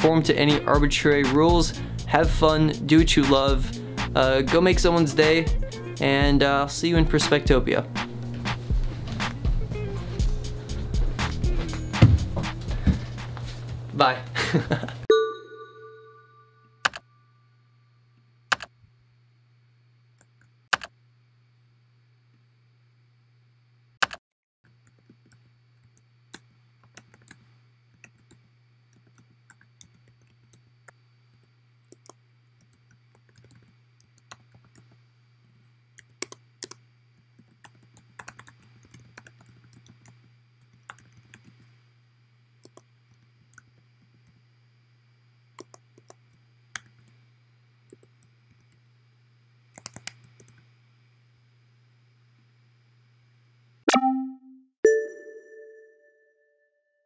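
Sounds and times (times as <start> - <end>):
faint steady hum: 24.7 - 53.8
computer keyboard typing: 31.9 - 34.8, 37.4 - 41.6, 49.8 - 50.6.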